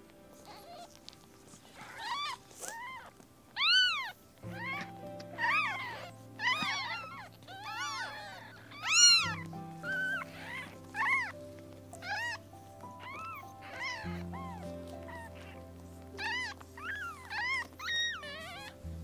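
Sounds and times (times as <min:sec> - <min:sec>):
kittens mewing: 0:00.3 - 0:19.0
background music with chords: 0:04.3 - 0:19.0.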